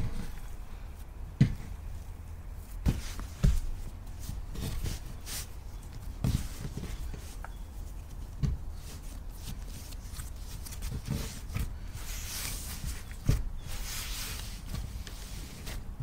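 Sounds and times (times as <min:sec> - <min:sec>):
hands rubbing dough and flour: 0:00.0 - 0:16.0
soft dull thuds of dough: 0:01.2 - 0:02.0, 0:02.8 - 0:05.2, 0:08.2 - 0:08.8.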